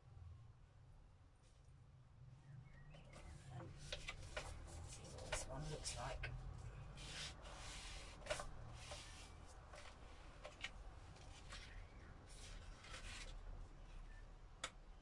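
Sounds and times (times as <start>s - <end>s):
paper rustling and rubbing: 3.2s - 13.6s.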